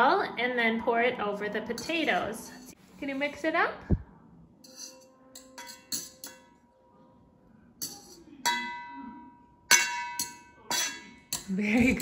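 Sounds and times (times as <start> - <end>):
fork clinking against metal bowl: 4.6 - 6.6, 7.8 - 9.1, 9.7 - 12.0.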